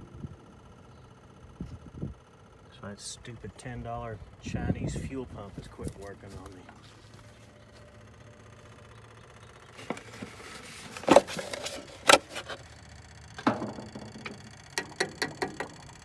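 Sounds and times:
faint steady hum: 0.0s - 16.0s
hands handling plastic parts: 9.8s - 12.6s
loud knocks with ringing: 13.4s - 15.8s.

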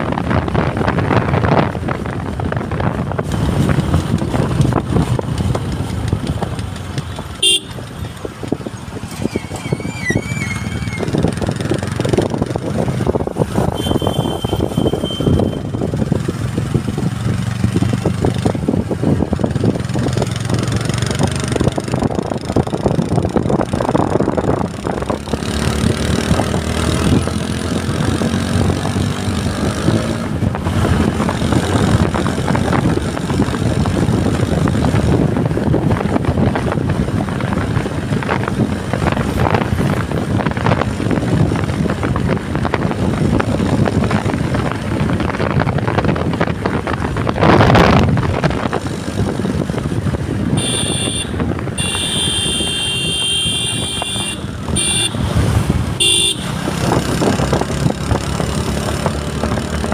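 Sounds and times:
motorcycle engine running: 0.0s - 59.9s
wind rushing over microphone: 0.0s - 59.9s
vehicle horn beeping: 7.4s - 7.9s, 13.7s - 15.7s, 50.5s - 55.3s, 56.0s - 56.6s.

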